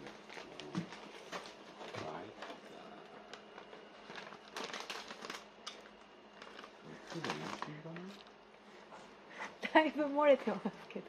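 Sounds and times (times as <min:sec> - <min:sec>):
plastic bag crinkling: 0:00.0 - 0:08.4.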